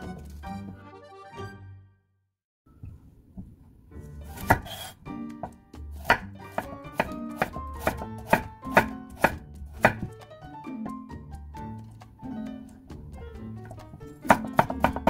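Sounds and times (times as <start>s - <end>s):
soft background music: 3.8s - 15.0s
knife chopping on wooden board: 4.3s - 10.1s, 14.3s - 15.0s.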